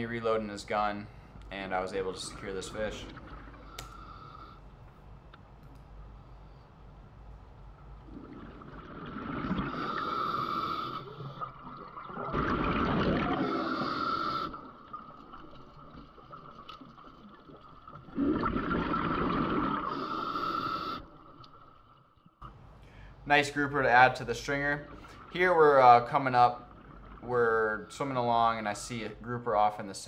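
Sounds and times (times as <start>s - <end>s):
diver breathing through regulator: 3.6s - 4.7s, 9.6s - 11.6s, 13.4s - 14.7s, 19.7s - 21.2s.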